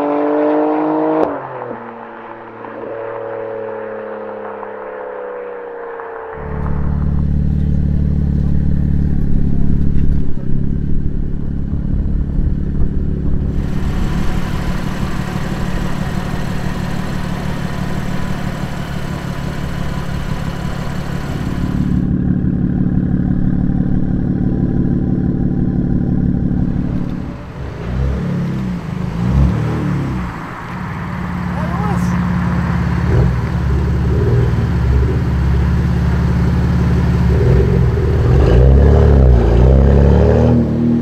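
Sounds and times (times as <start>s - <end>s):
car engine revving: 0.0s - 41.0s
car engine idling: 6.4s - 38.4s.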